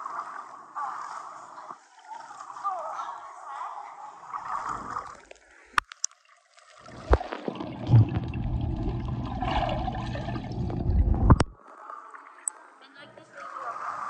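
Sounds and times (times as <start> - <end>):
pool water sloshing: 0.0 - 14.0
steady low rumble: 7.8 - 11.6.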